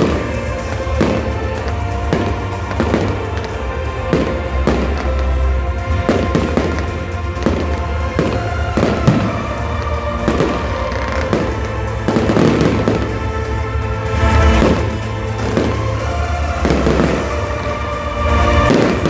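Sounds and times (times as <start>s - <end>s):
fireworks bursting: 0.0s - 19.0s
music with heavy bass: 0.0s - 19.0s.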